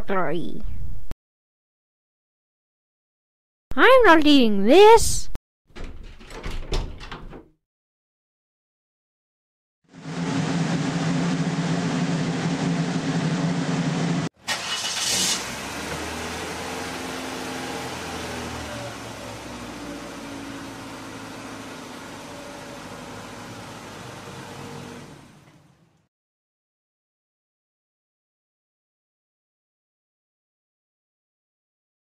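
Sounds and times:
car engine running: 9.9s - 26.0s.

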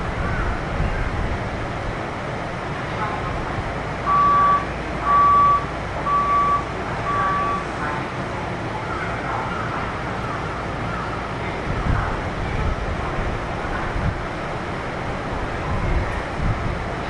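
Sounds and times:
train humming: 0.0s - 17.0s
electronic beeps: 4.1s - 7.7s.

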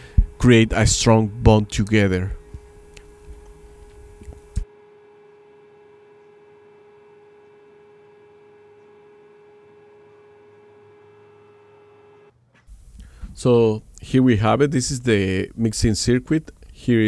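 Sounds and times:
steady electronic tone: 0.0s - 12.3s.

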